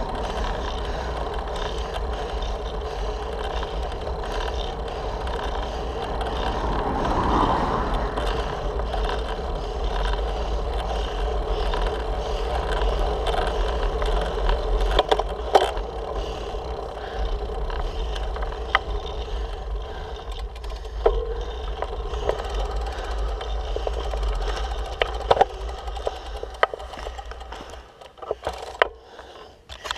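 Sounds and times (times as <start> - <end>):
bike clicks and knocks: 0.0 - 7.4, 8.2 - 29.9
road vibration rumble: 0.0 - 29.9
wind on microphone: 6.2 - 9.0.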